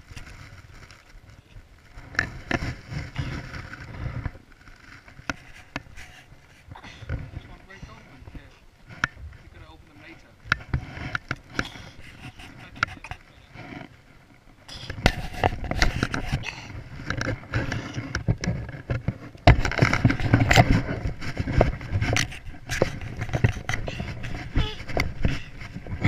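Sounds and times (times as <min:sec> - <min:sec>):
fabric rubbing on microphone: 0:00.0 - 0:26.0
sharp knocks and bumps: 0:14.8 - 0:26.0.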